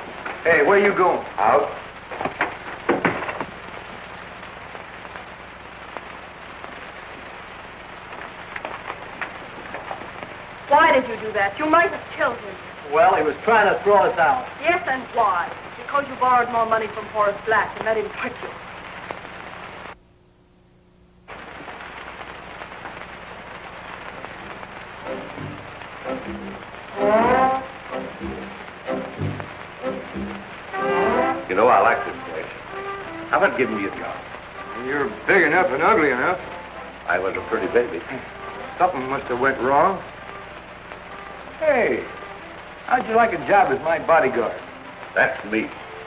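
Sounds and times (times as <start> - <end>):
film soundtrack hiss and crackle: 0.0 - 46.0.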